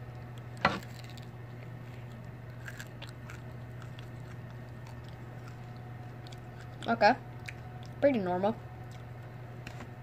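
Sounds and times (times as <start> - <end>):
candy crunched between teeth: 0.4 - 1.3, 2.0 - 6.9.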